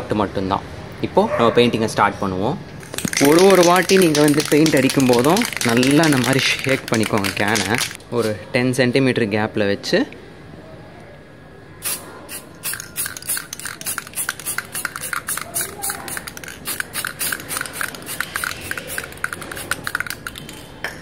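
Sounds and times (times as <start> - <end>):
spray can hissing: 2.8 - 8.3, 11.8 - 20.8
spray can rattling: 2.8 - 8.4, 11.8 - 21.0.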